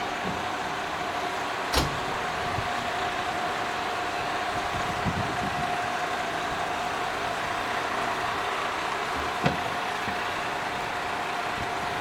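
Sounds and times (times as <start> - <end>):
diesel locomotive idling: 0.0 - 12.0.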